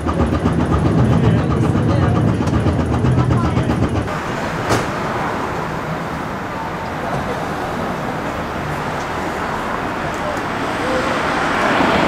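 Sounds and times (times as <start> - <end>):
streetcar running on rails: 0.0 - 12.0
passengers talking faintly: 4.8 - 12.0.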